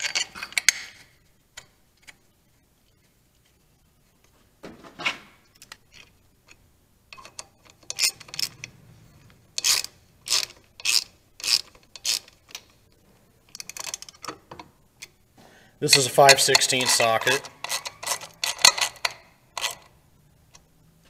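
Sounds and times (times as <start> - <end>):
ratchet wrench clicking: 9.6 - 12.6, 15.9 - 19.9.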